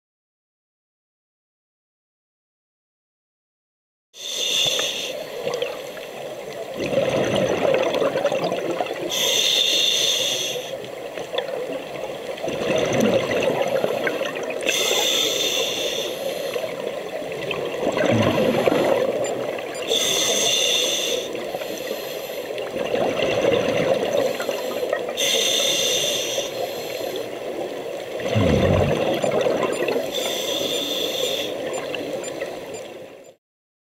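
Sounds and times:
regulator hissing inhale: 0:04.2 - 0:06.2, 0:09.1 - 0:10.9, 0:14.7 - 0:16.9, 0:19.8 - 0:22.6, 0:24.2 - 0:27.4, 0:30.0 - 0:31.6
bubbling exhaled air: 0:06.8 - 0:09.2, 0:12.5 - 0:16.0, 0:16.6 - 0:20.4, 0:28.1 - 0:31.9.

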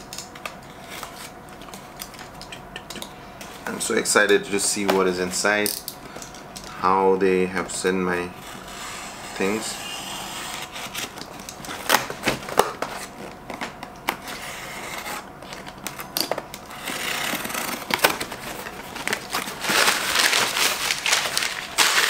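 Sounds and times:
box cutter cutting cardboard: 0:08.4 - 0:11.2, 0:14.2 - 0:15.3, 0:16.7 - 0:18.5
packing paper crinkling: 0:16.9 - 0:22.0.

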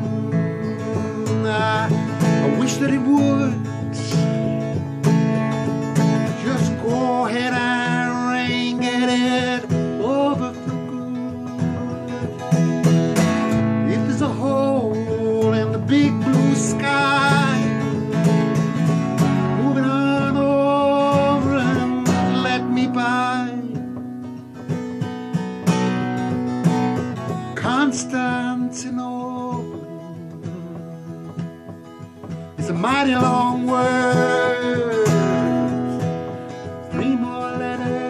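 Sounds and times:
man singing: 0:00.0 - 0:12.6, 0:13.2 - 0:24.4, 0:27.2 - 0:38.0
acoustic guitar strumming: 0:00.0 - 0:38.0.

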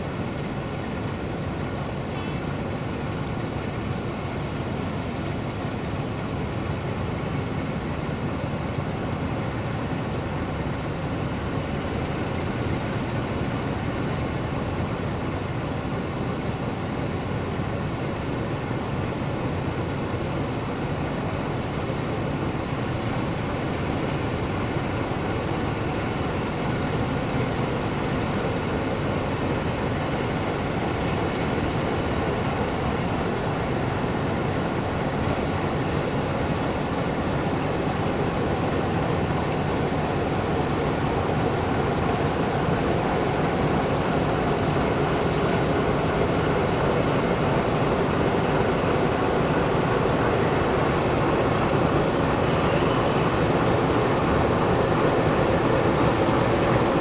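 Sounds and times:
locomotive diesel engine rumble: 0:00.0 - 0:57.0.

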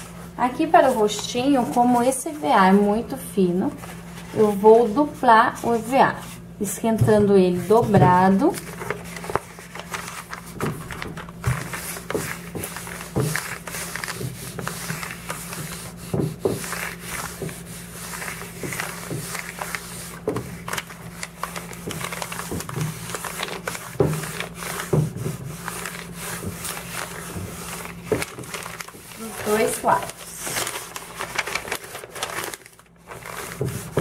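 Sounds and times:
iron scraping paper: 0:07.4 - 0:34.0.

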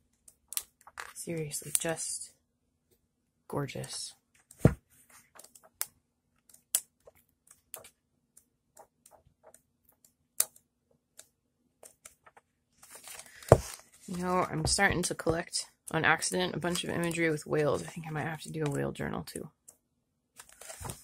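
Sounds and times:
book pages turning: 0:11.8 - 0:14.7, 0:20.4 - 0:21.0.

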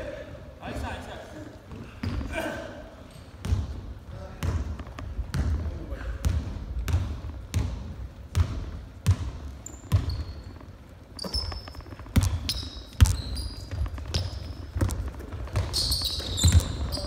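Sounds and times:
sneakers squeaking: 0:01.6 - 0:17.0
basketball bouncing on wooden floor: 0:03.4 - 0:17.0.

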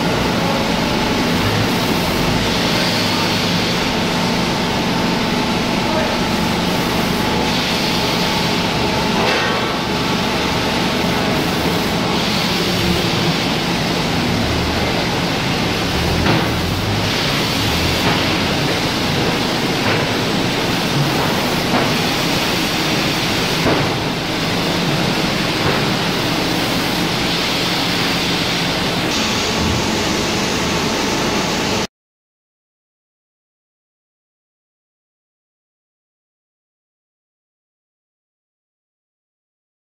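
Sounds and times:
conveyor machinery hiss and hum: 0:00.0 - 0:31.9.

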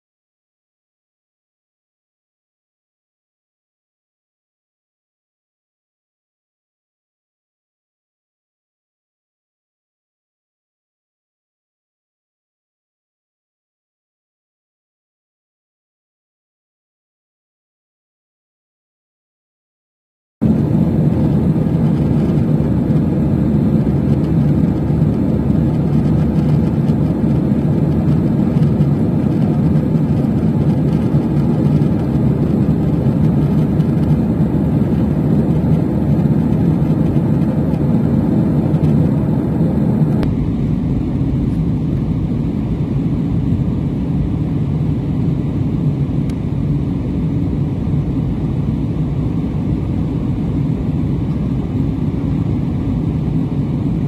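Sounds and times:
airliner cabin noise: 0:20.4 - 0:54.0.

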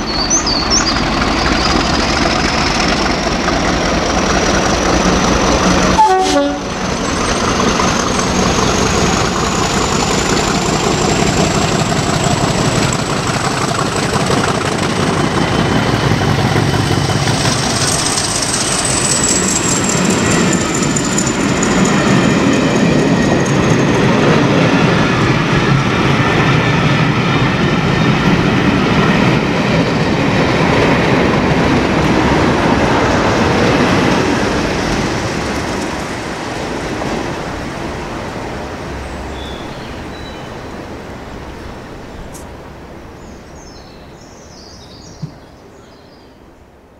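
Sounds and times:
train coaches rumbling and clacking: 0:00.0 - 0:46.2
diesel locomotive passing: 0:00.0 - 0:46.9
locomotive horn toot: 0:06.0 - 0:06.8.

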